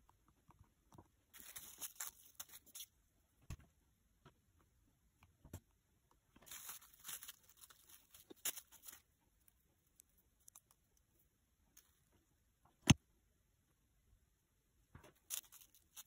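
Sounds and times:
plastic bag crinkling: 1.4s - 2.9s, 6.5s - 9.0s.

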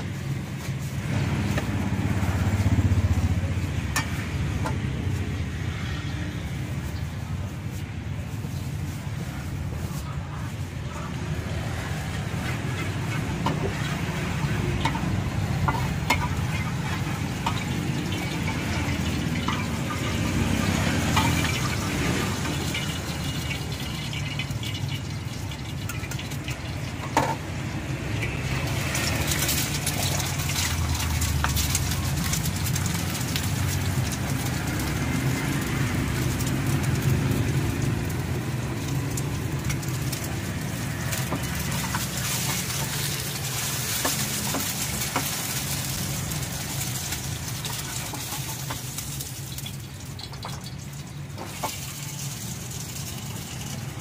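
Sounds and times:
oil sizzling in frying pan: 11.2s - 54.0s.

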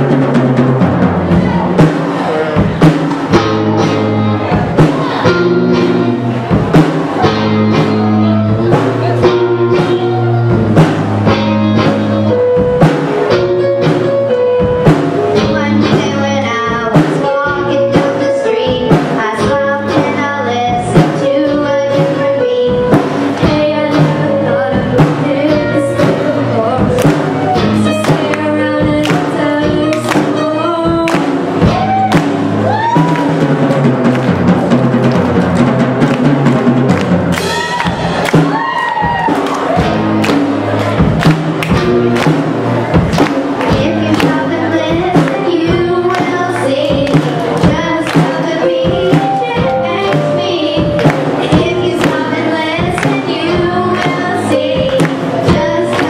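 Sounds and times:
drum kit beat: 0.0s - 56.0s
keyboard: 0.0s - 56.0s
girls singing into microphones: 15.4s - 32.0s, 43.6s - 56.0s.

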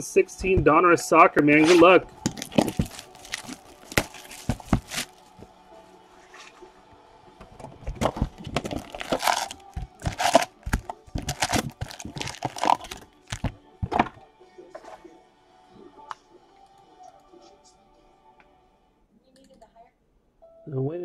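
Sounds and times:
cardboard crackling and tearing: 1.7s - 5.2s, 8.2s - 13.6s
foil wrappers crinkling: 2.2s - 5.3s, 8.3s - 13.6s.

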